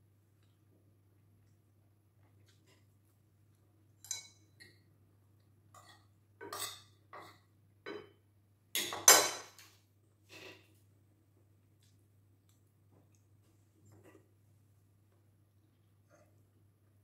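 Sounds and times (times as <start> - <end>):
cutlery clinking on ceramic plate: 4.0 - 4.8, 5.8 - 8.2, 8.8 - 9.6.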